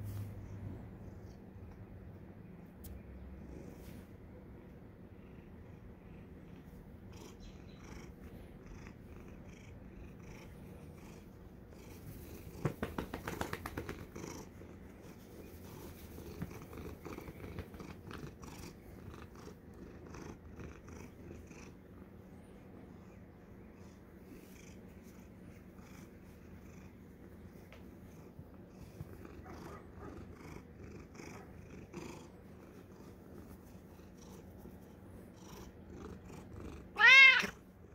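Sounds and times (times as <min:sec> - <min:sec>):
cat purring: 0:00.3 - 0:37.9.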